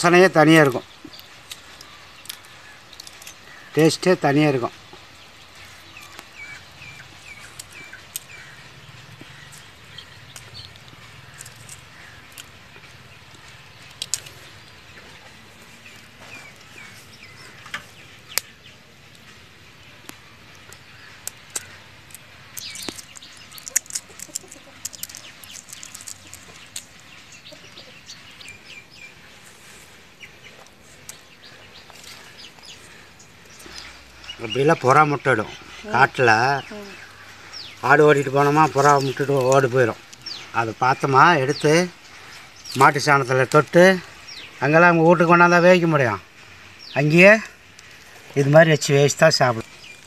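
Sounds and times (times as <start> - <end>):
birds chirping: 0.0 - 50.0
eggshell cracking and peeling: 9.5 - 14.8, 20.0 - 27.7.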